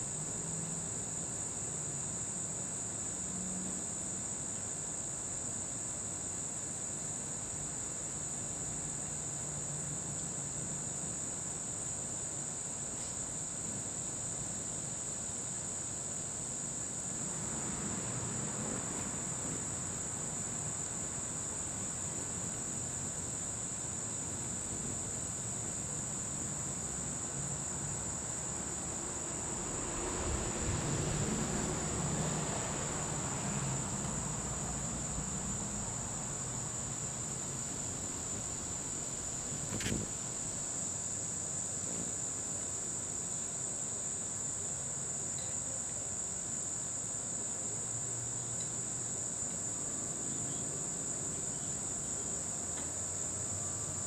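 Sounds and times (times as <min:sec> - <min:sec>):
crickets trilling: 0:00.0 - 0:54.0
soft rush of noise: 0:16.6 - 0:42.1.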